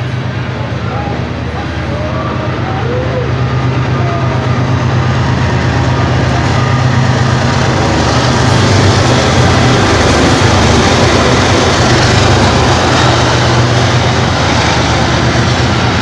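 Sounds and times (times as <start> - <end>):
diesel locomotive engine hum: 0.0 - 16.0
freight cars rolling over rails: 0.0 - 16.0.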